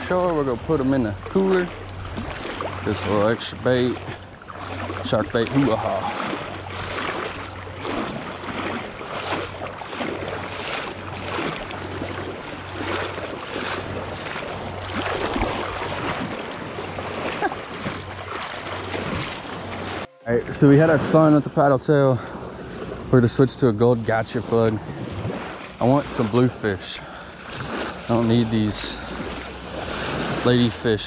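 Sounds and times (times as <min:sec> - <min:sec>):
wind buffeting microphone: 0:00.0 - 0:20.1
small surf: 0:00.0 - 0:31.0
water sloshing as person wades: 0:00.0 - 0:31.0.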